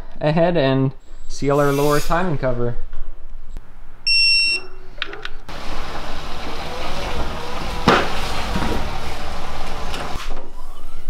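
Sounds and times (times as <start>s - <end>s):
short electronic beep: 4.1s - 4.9s
vehicle engine rumbling: 4.8s - 10.4s.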